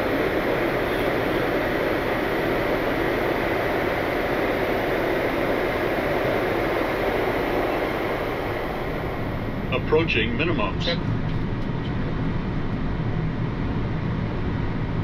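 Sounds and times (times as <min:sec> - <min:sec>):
rushing air: 0:00.0 - 0:10.7
aircraft engine noise: 0:00.0 - 0:15.0.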